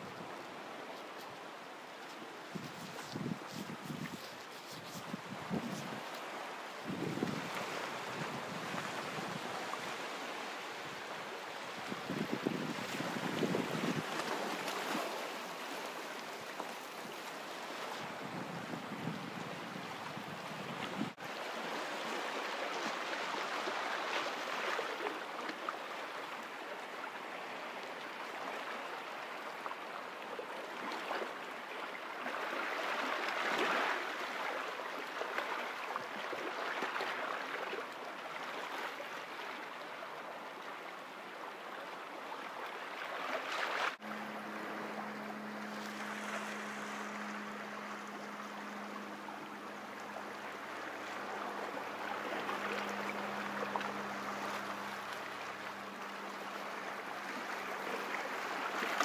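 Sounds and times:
low steady hum: 44.0s - 59.0s.

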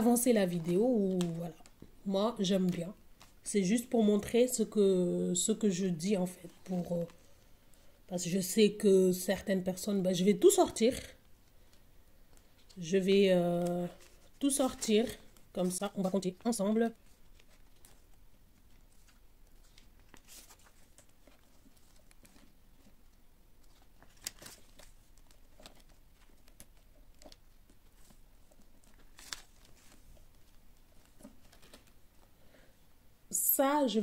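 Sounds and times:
paper and plastic rustling: 13.6s - 32.3s.

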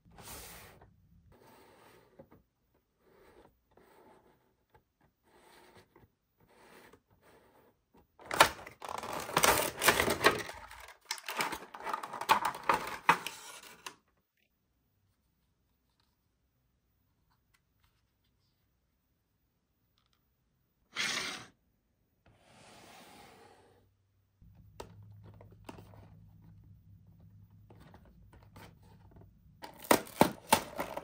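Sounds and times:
toy packaging crinkling: 8.3s - 13.9s.

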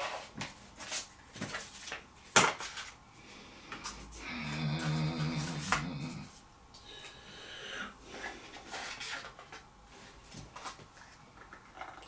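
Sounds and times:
cardboard and paper packaging rustling: 0.0s - 3.0s, 8.1s - 12.0s.

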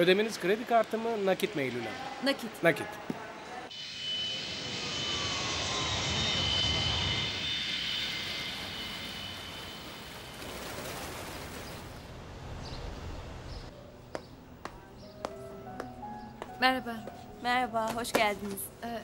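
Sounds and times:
jet airliner taking off: 3.7s - 13.4s.

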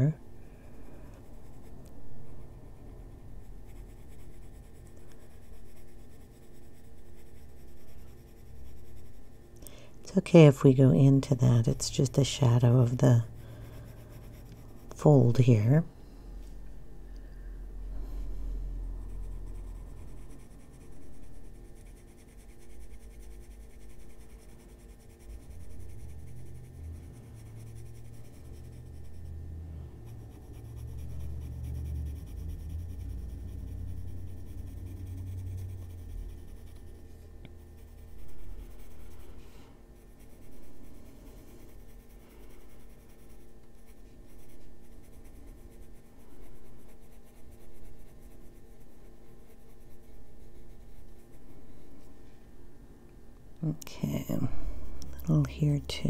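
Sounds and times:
pencil scratching on paper: 2.4s - 9.6s, 10.3s - 15.8s, 19.0s - 29.4s, 30.0s - 51.7s.

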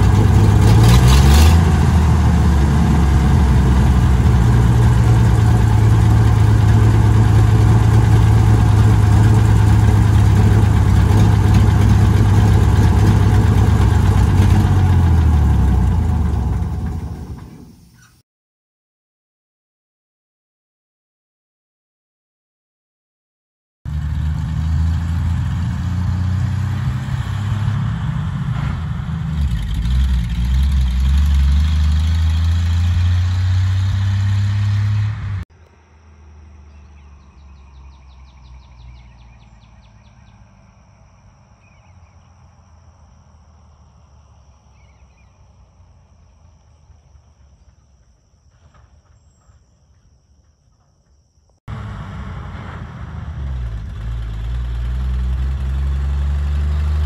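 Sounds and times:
truck engine running: 0.0s - 17.9s, 23.9s - 48.1s, 51.7s - 57.0s
distant truck approaching: 0.0s - 18.1s, 23.9s - 57.0s
birds chirping: 16.2s - 18.2s, 36.6s - 42.5s.

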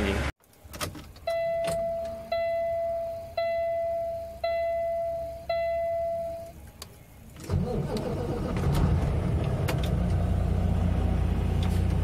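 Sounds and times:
electronic warning chime: 1.3s - 6.5s.

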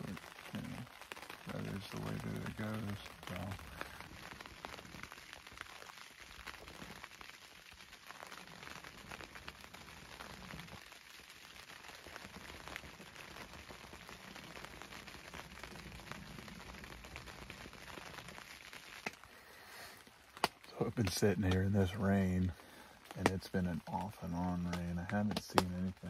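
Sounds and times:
light rain pattering on fabric: 0.0s - 26.0s.

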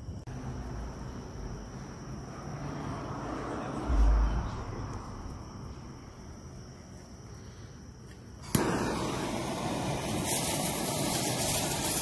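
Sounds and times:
fuse sparking hiss: 6.9s - 12.0s
firework fuse snap: 8.0s - 12.0s.

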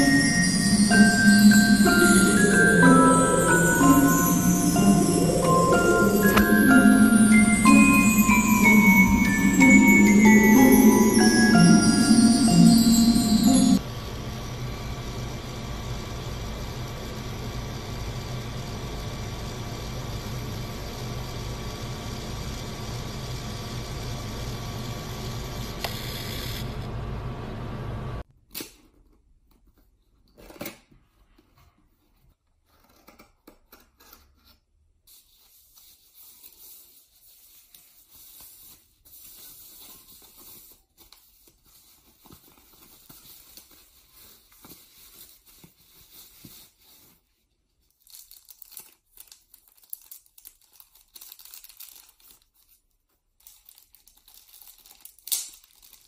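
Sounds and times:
photo printer motor humming: 16.5s - 26.9s
plastic packaging crinkling and tearing: 35.7s - 56.0s.

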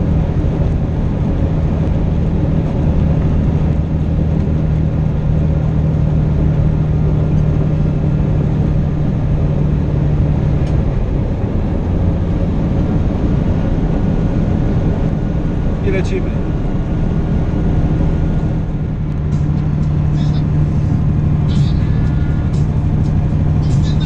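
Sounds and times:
diesel truck engine droning: 0.0s - 24.0s
tyre and road noise: 0.0s - 24.0s.

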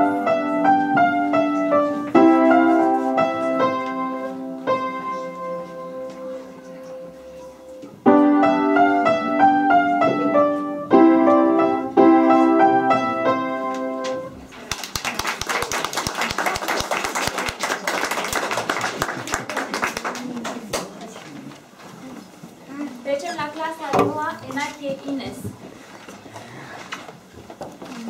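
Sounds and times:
piano chords: 0.0s - 14.5s
audience applause: 14.6s - 20.8s.

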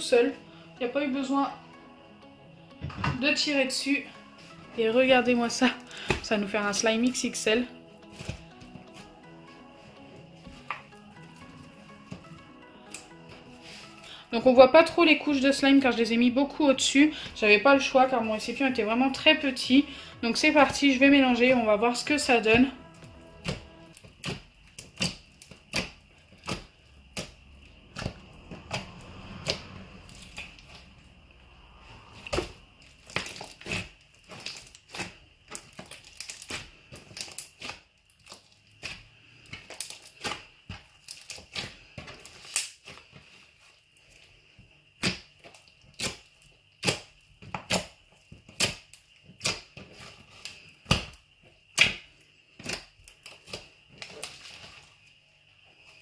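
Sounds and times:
slime squishing with wet pops: 23.5s - 27.4s, 32.2s - 43.4s, 45.0s - 54.9s.

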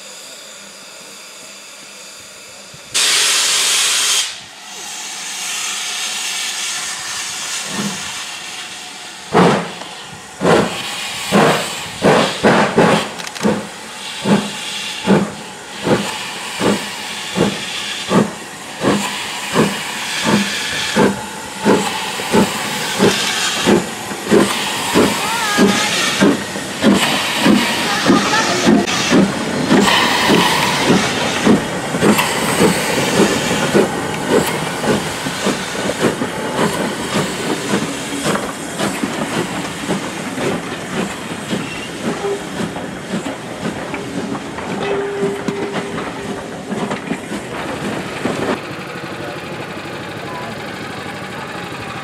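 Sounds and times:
steam locomotive hissing: 0.0s - 52.0s
loud blast of steam: 2.9s - 44.4s
locomotive exhaust chuffs: 7.2s - 52.0s.

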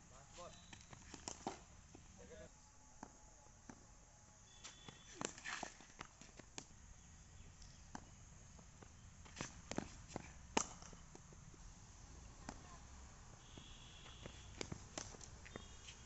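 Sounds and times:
cricket bat hitting ball: 10.5s - 11.0s.

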